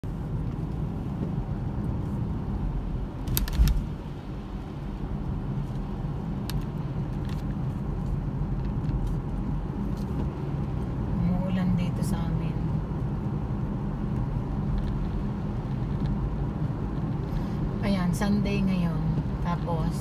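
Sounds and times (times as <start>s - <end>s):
car engine and road rumble: 0.0s - 20.0s.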